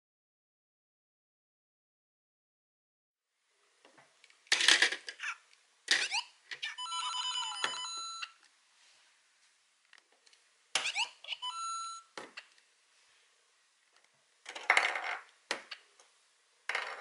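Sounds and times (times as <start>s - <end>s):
toy electronic sound bursts: 10.8s - 12.1s
beeping electronic jingle: 11.0s - 12.1s.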